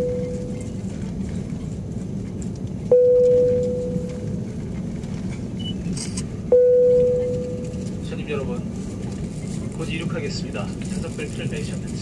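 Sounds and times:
clear ringing tone: 0:00.0 - 0:00.8, 0:02.9 - 0:04.4, 0:06.5 - 0:08.0
airliner cabin rumble: 0:00.0 - 0:12.0.

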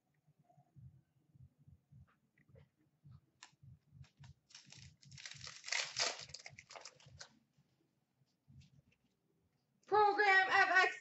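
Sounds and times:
wrapper crinkling: 0:04.5 - 0:07.3.

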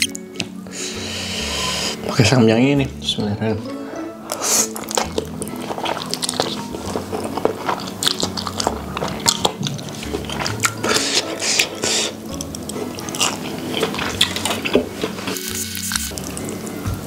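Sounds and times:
background music: 0:00.0 - 0:17.0
noodle slurping: 0:04.2 - 0:16.6.

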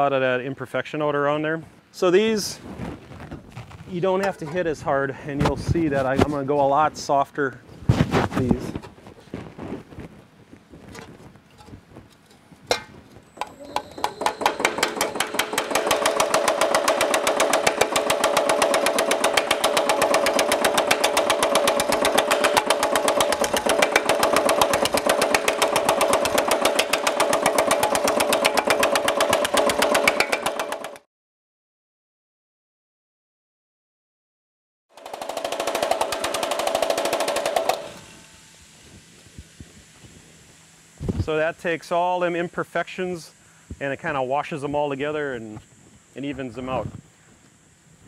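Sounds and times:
power hammer hammering sheet metal: 0:12.7 - 0:31.0, 0:34.9 - 0:38.0.

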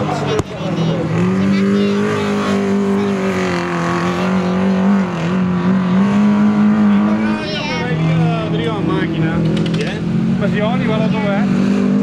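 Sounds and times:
car engine revving high: 0:00.0 - 0:12.0.

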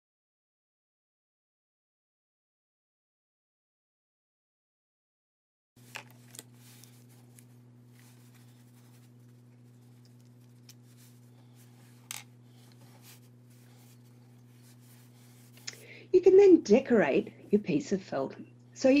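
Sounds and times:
faint low hum: 0:05.8 - 0:19.0.

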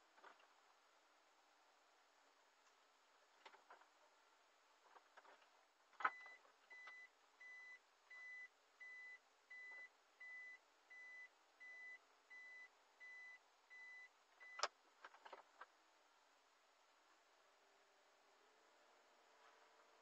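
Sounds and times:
reverse warning beeps: 0:06.1 - 0:14.6.

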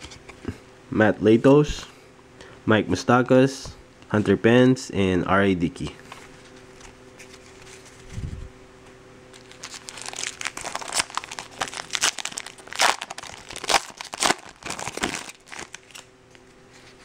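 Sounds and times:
foil wrapper tearing and crinkling: 0:09.3 - 0:16.1.

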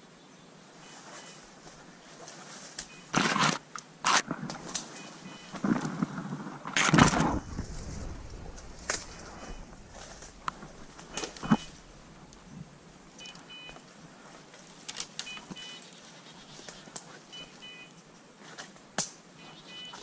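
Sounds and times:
twigs snapping underfoot: 0:01.6 - 0:05.0, 0:05.6 - 0:12.5, 0:13.1 - 0:15.6, 0:16.5 - 0:17.2, 0:18.5 - 0:19.2
beeper collar double beeps: 0:05.0 - 0:05.6, 0:13.2 - 0:13.8, 0:15.3 - 0:15.8, 0:17.3 - 0:17.9, 0:19.4 - 0:20.0.

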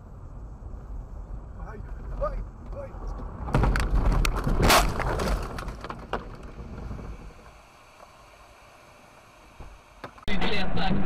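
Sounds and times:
car crash impact: 0:03.4 - 0:06.7.

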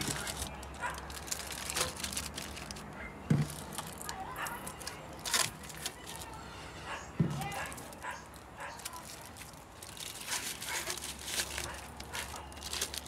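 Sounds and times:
foil packets crinkling: 0:00.0 - 0:06.5, 0:07.4 - 0:13.0
dull knock: 0:07.2 - 0:07.5.

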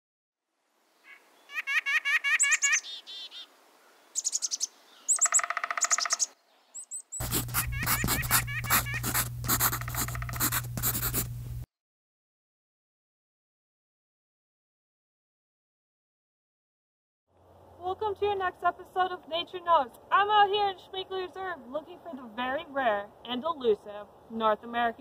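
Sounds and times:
songbirds chirping: 0:00.9 - 0:07.2
nasal bird call: 0:01.0 - 0:03.5, 0:04.1 - 0:10.4
steady low hum: 0:07.2 - 0:11.7.

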